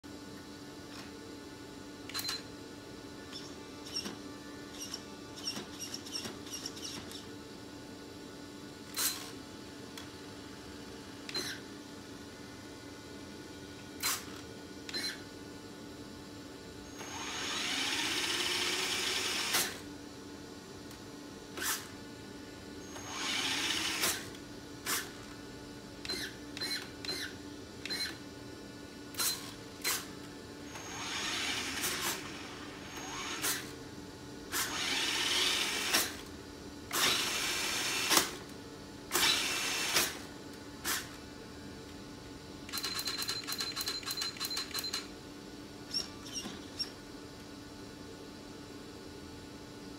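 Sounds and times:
small servos whirring: 3.3s - 7.3s, 11.3s - 11.6s, 14.0s - 15.2s, 16.9s - 19.8s, 21.6s - 21.9s, 22.8s - 25.3s, 26.0s - 28.2s, 29.1s - 30.1s, 30.7s - 33.8s, 34.5s - 36.3s, 36.9s - 38.5s, 39.1s - 41.2s.

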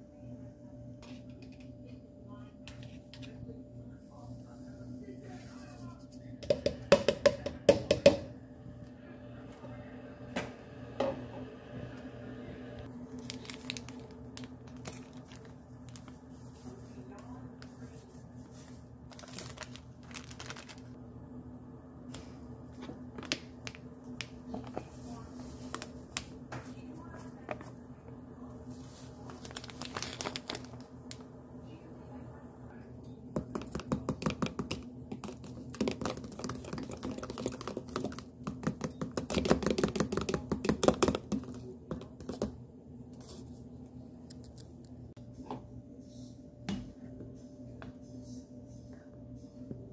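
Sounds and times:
steady low hum: 0.0s - 38.7s
plastic packet crinkling: 13.0s - 16.2s, 19.1s - 21.0s, 29.2s - 31.2s.

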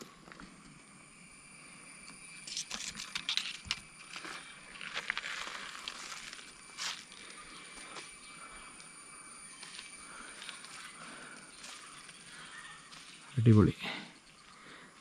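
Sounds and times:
footsteps crunching through dry leaves: 4.0s - 7.1s.

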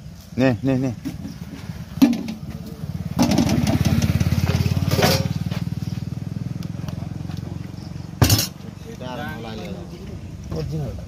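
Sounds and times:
small engine putter: 2.0s - 6.8s.

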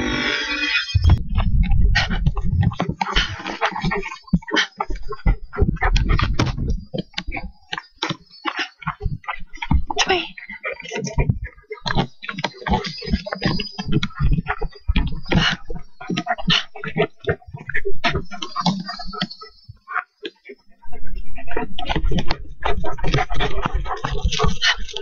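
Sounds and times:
wind buffeting microphone: 1.0s - 7.6s
running footsteps: 1.0s - 19.8s, 20.4s - 25.0s.

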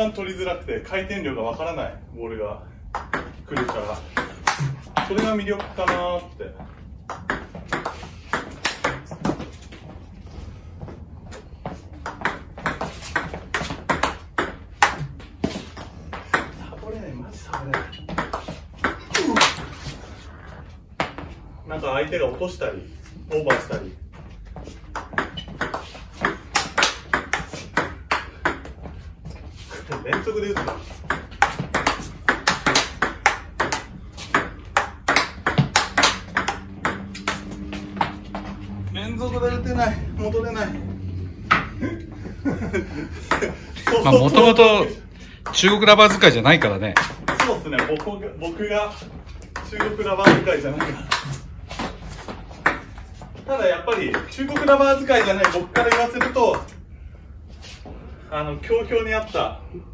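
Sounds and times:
ball bouncing on table: 2.9s - 6.1s, 7.0s - 9.6s, 12.0s - 16.6s, 17.5s - 19.7s, 24.9s - 28.8s, 29.9s - 38.9s, 45.4s - 48.1s, 49.5s - 53.1s, 53.9s - 56.8s.

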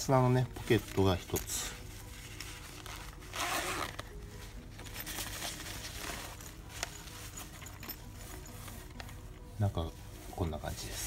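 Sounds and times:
fabric rustling: 0.0s - 11.0s
zipper pulled open: 1.8s - 4.2s, 4.8s - 9.2s.

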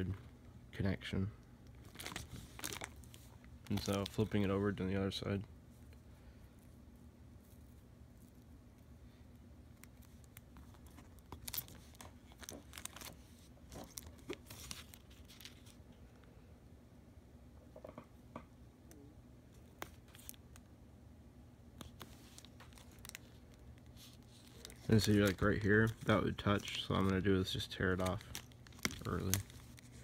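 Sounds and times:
plastic film crinkling: 1.7s - 4.8s, 9.7s - 15.8s, 19.6s - 20.7s, 21.8s - 30.0s.

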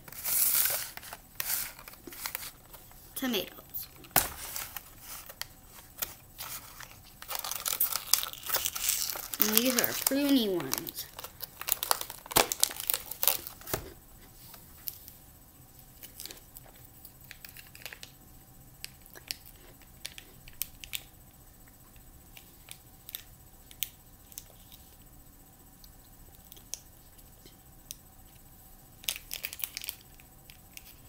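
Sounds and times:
plastic wrapper crinkling: 0.0s - 13.8s, 17.2s - 18.1s, 29.0s - 31.0s.

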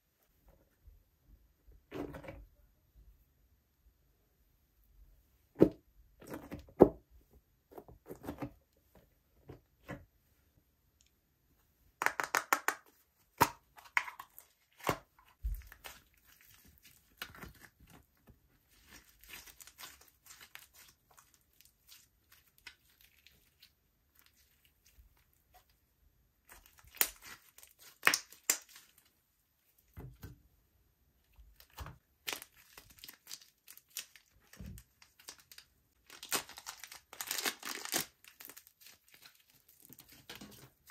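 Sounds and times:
slime crackling and popping: 26.5s - 29.0s.

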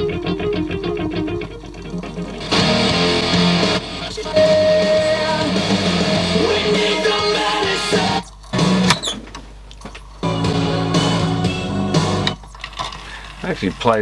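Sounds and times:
rock band playing: 0.0s - 8.9s, 10.2s - 12.4s
picked electric guitar: 0.0s - 9.0s, 10.2s - 12.4s.

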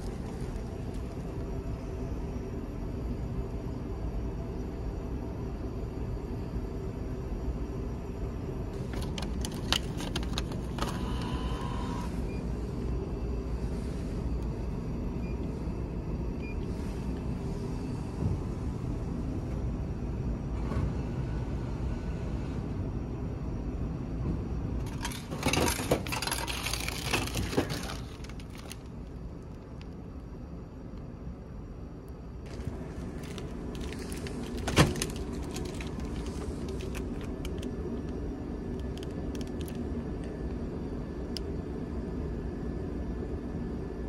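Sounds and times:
clattering and plastic crinkling: 8.8s - 11.0s, 24.8s - 29.0s, 32.5s - 37.7s.

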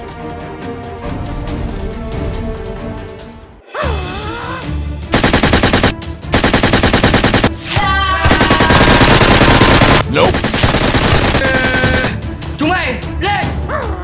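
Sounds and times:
background music: 0.0s - 14.0s
machine-gun fire bursts: 5.1s - 7.6s, 8.2s - 12.2s.

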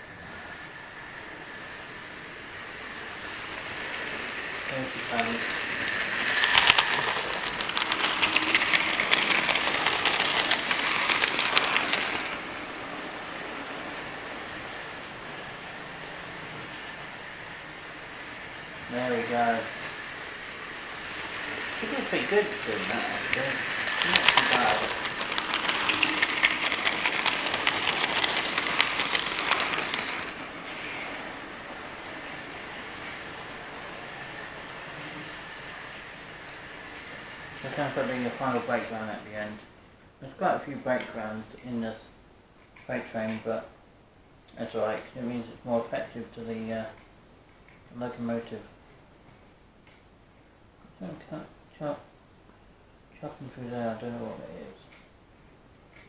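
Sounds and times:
model train wheels clicking: 1.0s - 15.8s, 17.9s - 39.6s.

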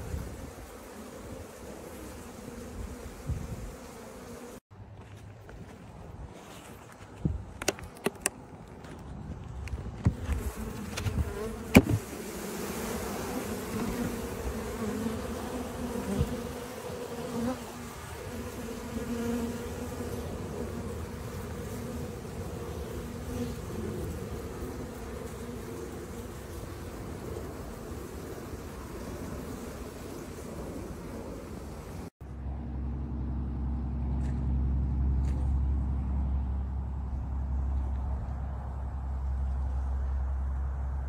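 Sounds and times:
honey bees buzzing: 0.0s - 4.6s, 10.1s - 32.1s
sharp knocks on wooden hive: 10.9s - 12.1s.

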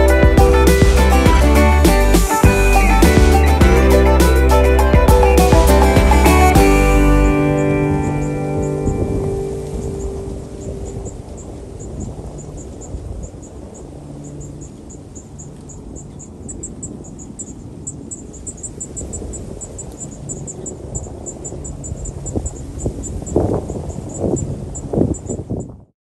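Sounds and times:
low microphone rumble: 0.0s - 14.3s
cricket chirping: 9.7s - 23.4s.

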